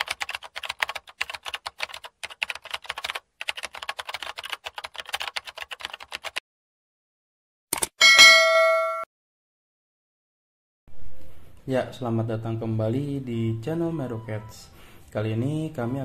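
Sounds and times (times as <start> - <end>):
rapid typing on keyboard: 0.0 - 6.4.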